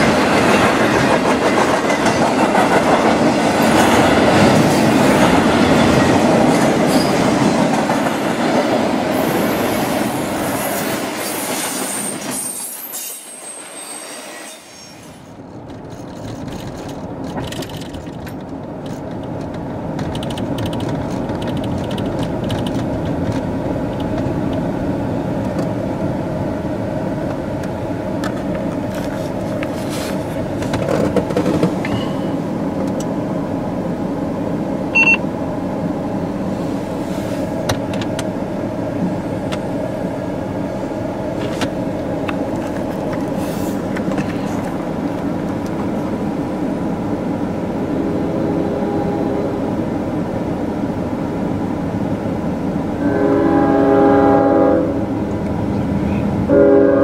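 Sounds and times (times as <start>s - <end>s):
car cabin road and engine noise: 15.3s - 47.9s
short high beep: 35.0s - 35.2s.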